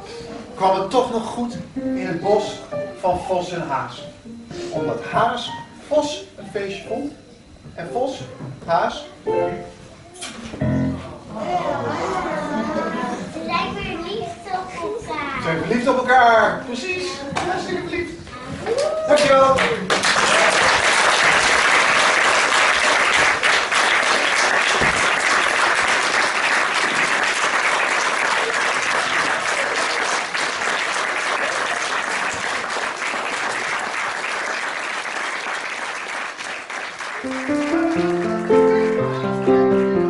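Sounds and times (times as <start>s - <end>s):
melodic music: 1.8s - 3.1s, 4.3s - 5.8s, 37.2s - 40.0s
audience applause: 18.8s - 39.2s.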